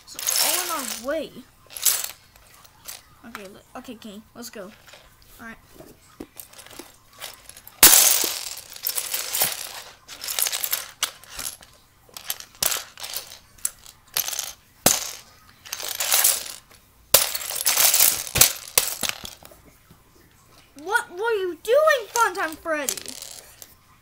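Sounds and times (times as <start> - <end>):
plastic bricks clattering in a bin: 0.0 - 3.0, 6.2 - 19.5, 21.7 - 23.6.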